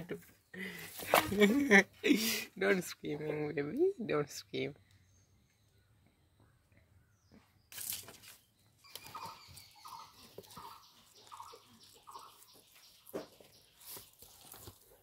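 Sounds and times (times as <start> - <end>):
baby rabbit squeaking: 8.9 - 13.2.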